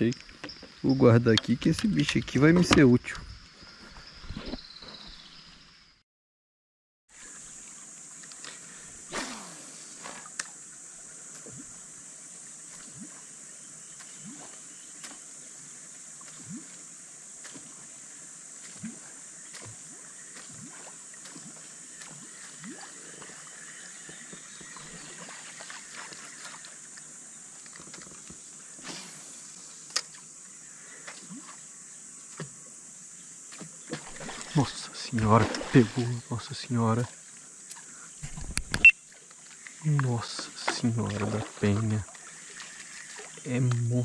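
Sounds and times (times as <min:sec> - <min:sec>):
high-pitched insect buzz: 0:07.2 - 0:40.8.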